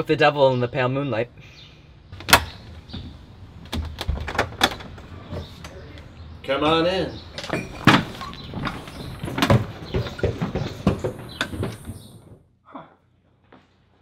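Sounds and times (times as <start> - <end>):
door swinging shut: 2.2 - 5.4.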